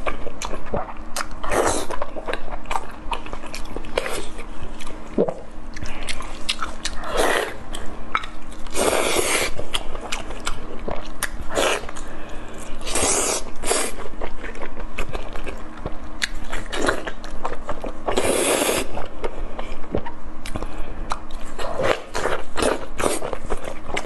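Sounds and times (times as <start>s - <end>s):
wet smacking and chewing: 0.1s - 12.1s, 14.0s - 18.2s.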